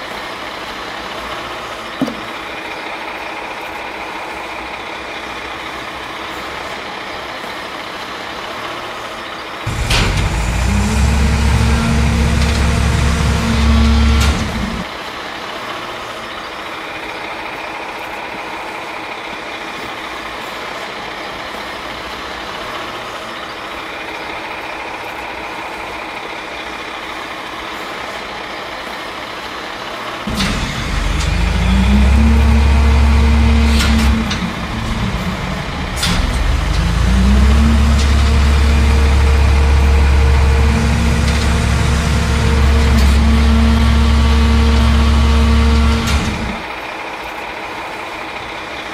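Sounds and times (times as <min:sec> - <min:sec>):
garbage truck packer motor: 0:01.3 - 0:06.6, 0:09.6 - 0:15.0, 0:23.8 - 0:48.9.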